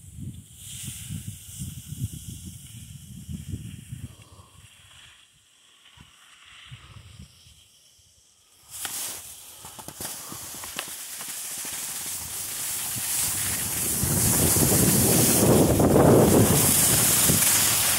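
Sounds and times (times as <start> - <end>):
wind rumbling on microphone: 0.0 - 5.1, 6.0 - 7.7, 11.9 - 17.9
skis scraping over snow: 8.7 - 17.9.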